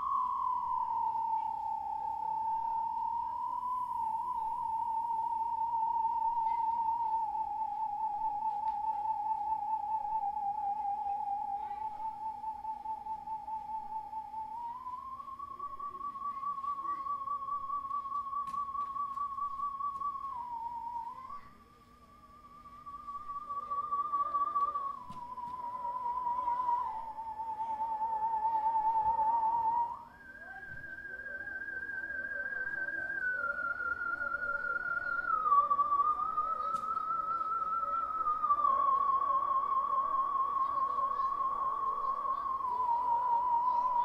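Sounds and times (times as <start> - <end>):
pure tone with vibrato: 0.0 - 44.0.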